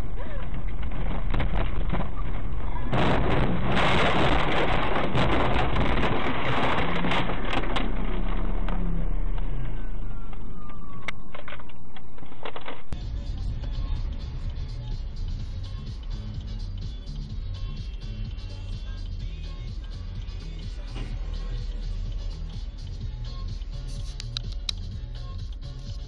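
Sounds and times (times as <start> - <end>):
branches scraping and snapping on car: 0.5 - 9.4.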